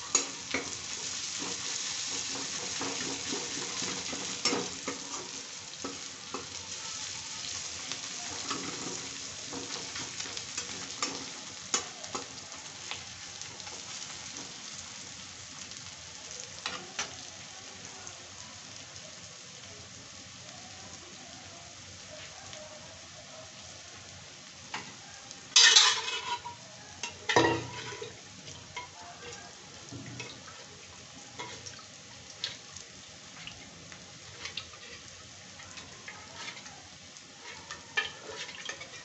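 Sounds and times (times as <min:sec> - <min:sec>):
onions sizzling in hot oil: 0:00.0 - 0:39.0
metal spatula scraping pan: 0:25.6 - 0:26.6, 0:27.3 - 0:28.2, 0:36.4 - 0:36.7, 0:37.4 - 0:39.0.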